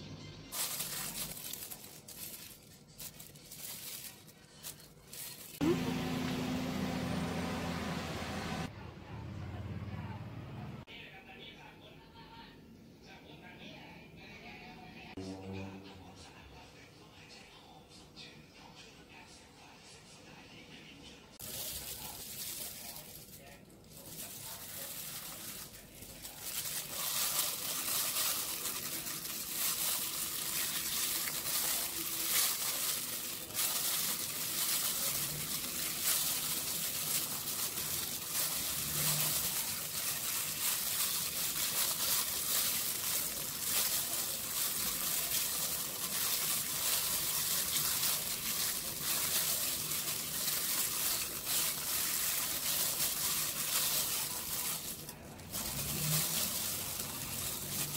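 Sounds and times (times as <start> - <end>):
plastic glove crinkling: 0.5 - 8.0, 21.4 - 57.9.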